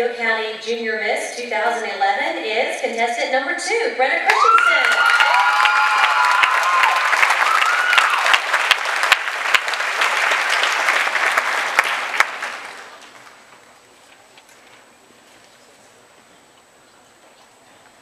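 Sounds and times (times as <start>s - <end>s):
audience applause: 4.3s - 13.6s.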